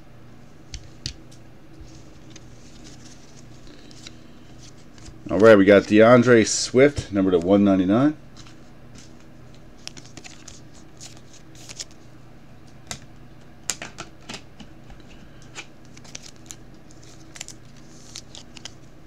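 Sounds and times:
low steady hum: 0.0 - 19.0
cards and sleeve rustling: 1.8 - 7.5, 8.3 - 12.1, 15.0 - 19.0.

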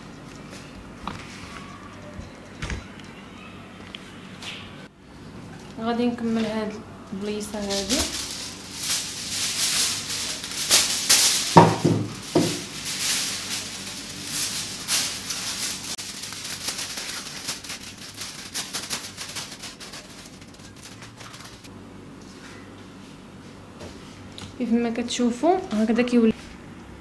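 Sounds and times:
aluminium foil crinkling: 6.2 - 21.7.

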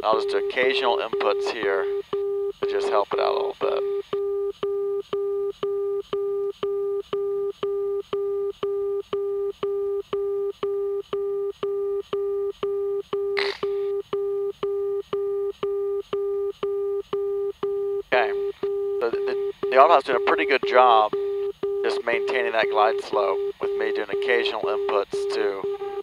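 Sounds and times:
marker beacon tone dashes: 21.8 - 25.7.

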